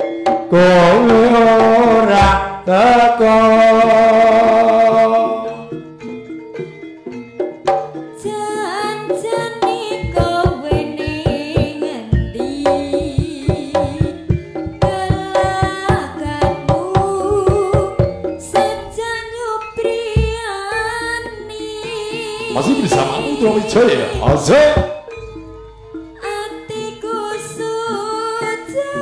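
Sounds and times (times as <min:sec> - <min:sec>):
hand drums beating: 0:00.0 - 0:02.6, 0:07.2 - 0:26.8
pitched melodic percussion: 0:00.0 - 0:29.0
wavering melody line: 0:00.6 - 0:29.0.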